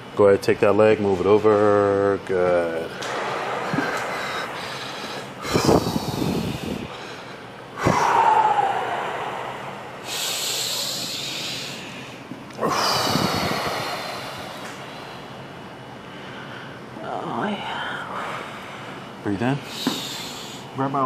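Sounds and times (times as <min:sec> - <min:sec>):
person breathing hard: 0:03.4 - 0:15.4, 0:17.8 - 0:20.7.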